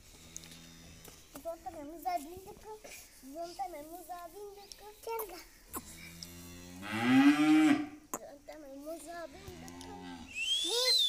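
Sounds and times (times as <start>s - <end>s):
cow mooing: 6.2s - 7.9s.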